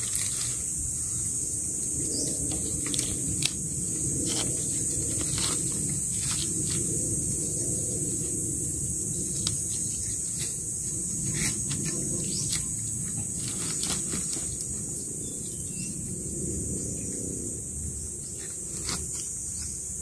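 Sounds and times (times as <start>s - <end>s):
bamboo poles clicking and rustling: 0.0s - 0.7s, 2.3s - 3.6s, 4.2s - 6.9s, 9.3s - 15.0s
insects droning: 0.0s - 20.0s
low rumble: 0.8s - 19.0s.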